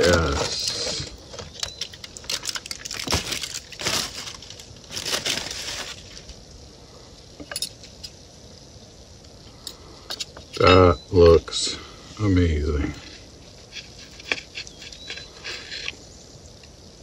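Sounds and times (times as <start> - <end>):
aluminium foil crinkling: 0.0 - 6.4, 13.0 - 16.0.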